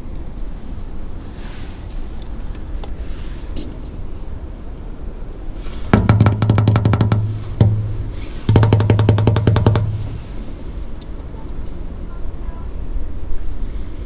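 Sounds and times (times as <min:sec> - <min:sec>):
knock on slide: 0:05.9 - 0:10.2
fingers drumming on playground slide: 0:05.9 - 0:10.5.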